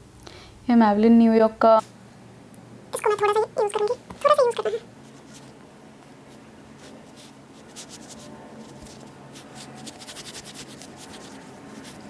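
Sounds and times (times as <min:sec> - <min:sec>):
fingertips rubbing skin: 0:06.3 - 0:12.0.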